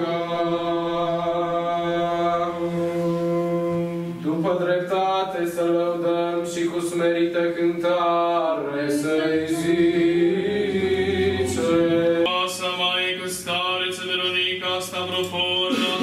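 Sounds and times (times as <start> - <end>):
choir of women chanting: 7.6 - 12.3.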